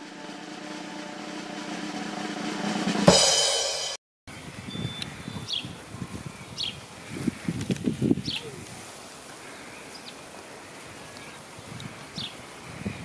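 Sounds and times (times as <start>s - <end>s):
cymbal crash: 0.0s - 4.0s
held chord: 0.0s - 4.0s
snare drum roll: 0.0s - 4.0s
bird chirps: 4.3s - 5.8s.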